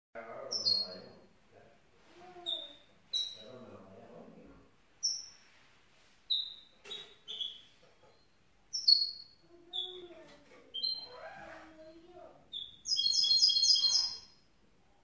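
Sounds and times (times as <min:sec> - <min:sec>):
bird chirping high: 0:00.5 - 0:01.2, 0:02.3 - 0:03.5, 0:05.0 - 0:05.4, 0:06.3 - 0:14.5.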